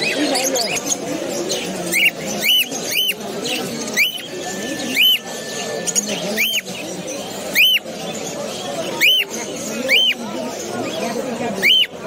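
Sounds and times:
cockatiel chirping: 0:01.9 - 0:05.2, 0:05.8 - 0:06.9, 0:07.5 - 0:07.8.

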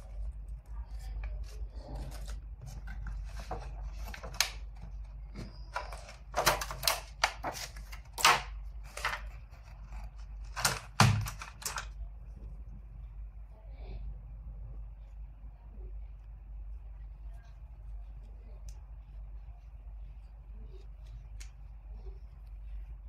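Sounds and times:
paper manual rustling: 0:00.0 - 0:11.9
plastic packaging crackling: 0:00.0 - 0:12.0.

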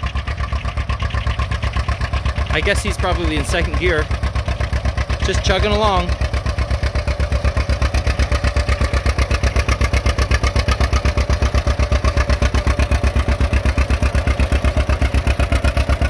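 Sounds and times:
tractor engine chugging: 0:00.0 - 0:16.0.

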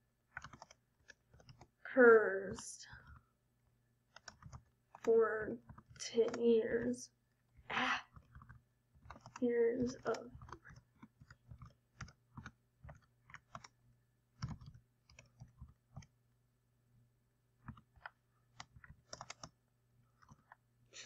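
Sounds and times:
keystrokes on computer keyboard: 0:00.3 - 0:01.8, 0:04.1 - 0:06.9, 0:07.6 - 0:13.8, 0:14.4 - 0:16.1, 0:17.6 - 0:19.6, 0:20.2 - 0:20.6.

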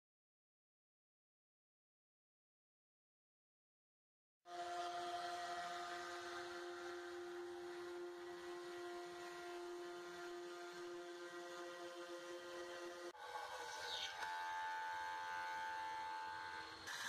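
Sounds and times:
mill spindle whining: 0:04.5 - 0:17.0.

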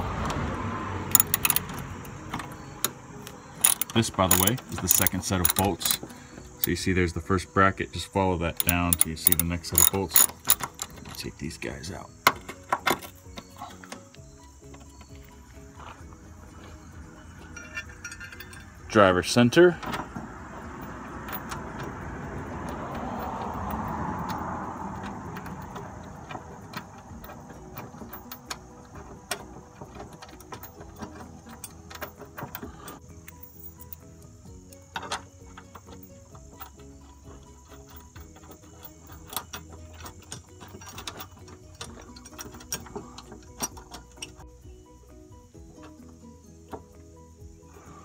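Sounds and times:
vehicle passing: 0:00.0 - 0:34.7
socket ratchet clicking: 0:01.1 - 0:06.8, 0:08.5 - 0:11.4, 0:20.1 - 0:44.5.

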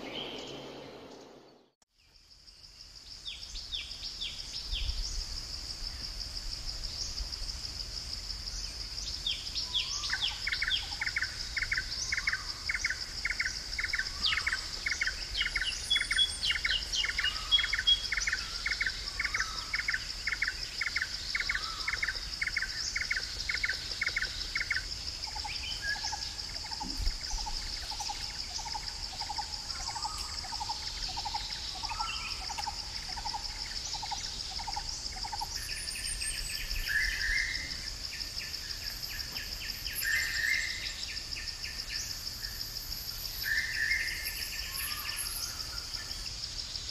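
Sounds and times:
insect drone: 0:00.0 - 0:46.9
birds calling: 0:09.3 - 0:37.9.

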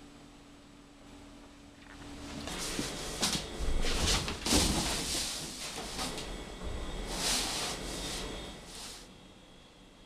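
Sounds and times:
cardboard box scraping on tiled floor: 0:03.8 - 0:06.2, 0:07.0 - 0:09.1.

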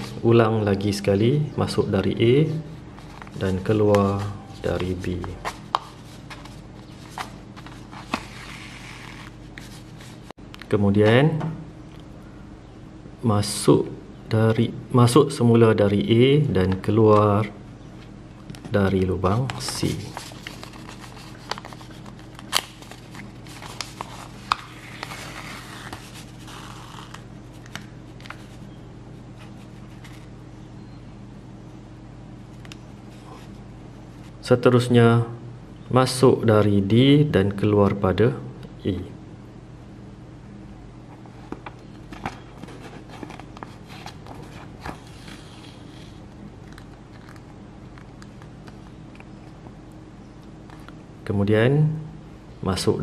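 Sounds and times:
steady low hum: 0:00.0 - 0:53.0
paper clicks and crinkles: 0:19.4 - 0:28.6, 0:41.4 - 0:49.3.

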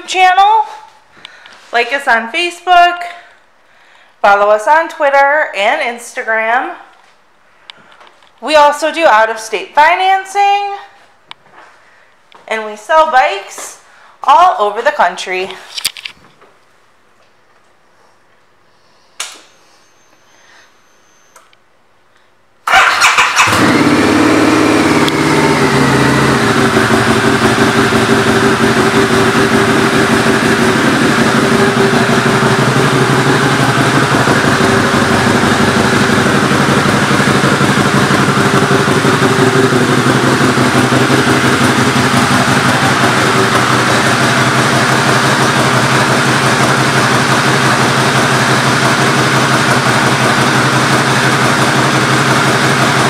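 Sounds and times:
motorcycle engine idling: 0:22.7 - 0:53.0.

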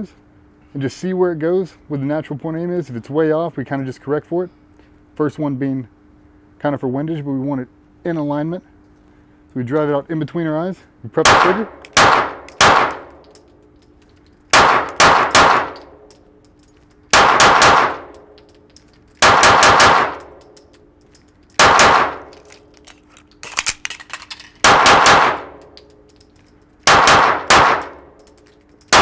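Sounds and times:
pistol shots reverberating: 0:11.2 - 0:13.1, 0:14.5 - 0:16.0, 0:17.1 - 0:18.2, 0:19.2 - 0:20.4, 0:21.6 - 0:22.3, 0:24.6 - 0:25.6, 0:26.8 - 0:28.1.

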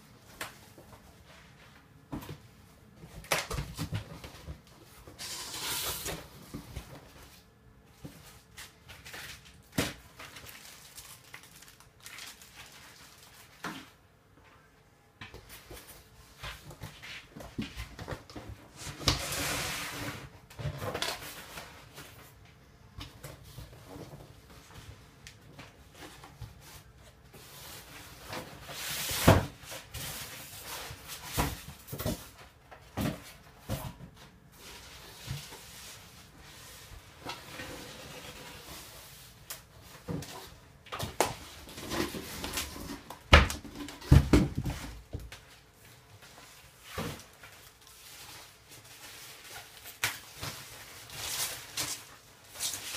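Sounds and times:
packaging rustling: 0:08.9 - 0:13.6
cardboard box knocks and thuds: 0:43.3 - 0:45.0.

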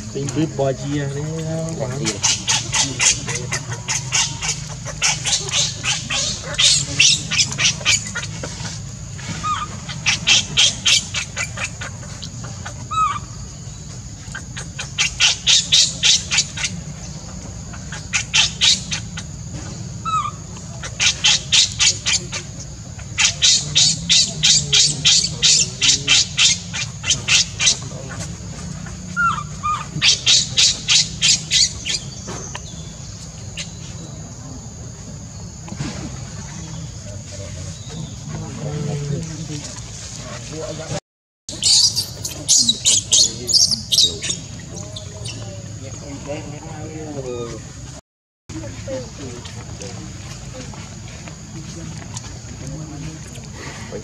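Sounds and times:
high insect hum: 0:00.0 - 0:54.0
bird chirps: 0:00.1 - 0:34.6, 0:41.5 - 0:46.3
baby monkey screaming: 0:02.0 - 0:08.4, 0:09.3 - 0:11.9, 0:12.9 - 0:13.4, 0:20.0 - 0:22.4, 0:28.8 - 0:32.2, 0:41.5 - 0:44.4.

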